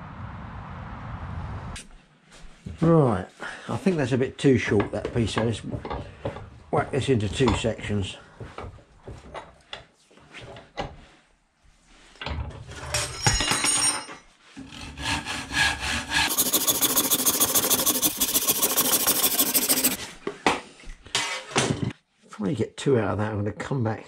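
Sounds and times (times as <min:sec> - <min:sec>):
hand saw cutting wood: 0:14.6 - 0:20.0.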